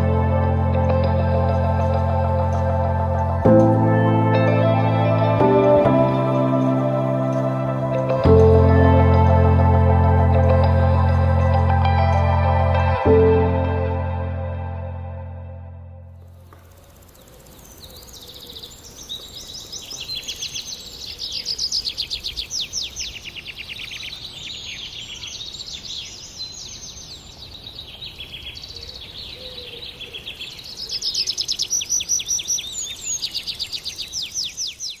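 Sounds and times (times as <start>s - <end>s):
birds chirping: 16.2s - 35.0s.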